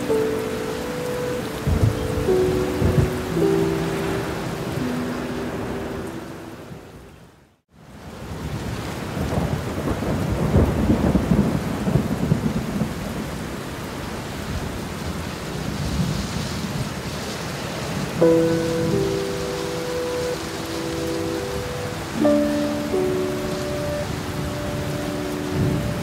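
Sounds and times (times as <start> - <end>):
held musical notes: 0.0 - 6.8, 18.2 - 26.0
floodwater rushing: 0.0 - 7.1, 7.8 - 26.0
heavy rain: 0.0 - 26.0.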